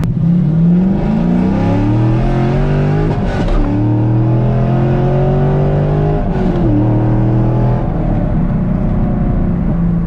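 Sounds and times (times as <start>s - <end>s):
car engine accelerating: 0.0s - 10.0s.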